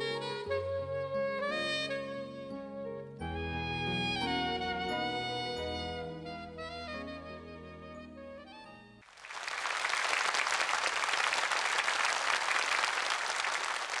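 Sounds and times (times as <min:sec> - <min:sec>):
studio audience applause: 0:09.0 - 0:14.0.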